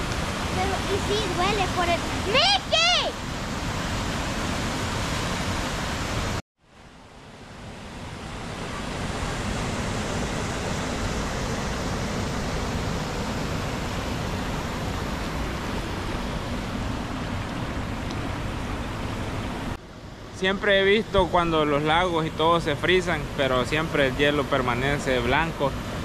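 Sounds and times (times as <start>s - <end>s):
water rushing down waterfall: 0.0s - 6.4s, 7.0s - 26.0s.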